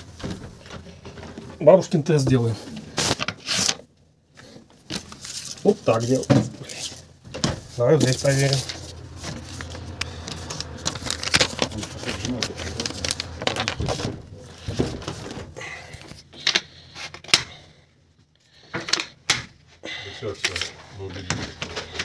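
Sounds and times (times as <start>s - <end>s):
paper rustling and crinkling: 2.3s - 3.8s, 4.8s - 17.2s.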